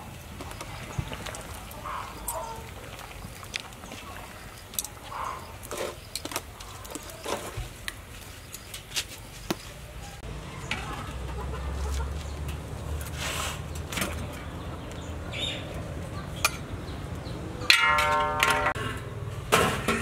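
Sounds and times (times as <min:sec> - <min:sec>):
chickens clucking: 0:00.5 - 0:03.3, 0:05.0 - 0:06.0, 0:10.0 - 0:13.0.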